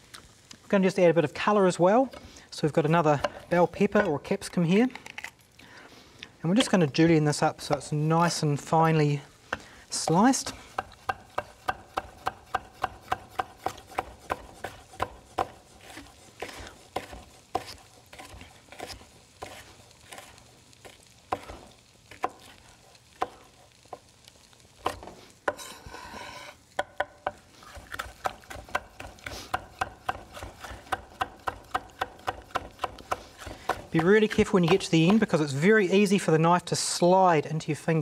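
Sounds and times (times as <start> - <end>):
knife chopping on wooden board: 10.8 - 20.4, 21.3 - 22.5, 23.2 - 23.4, 24.8 - 35.3
knife scraping board: 10.8 - 22.6, 24.9 - 26.6, 27.6 - 31.0.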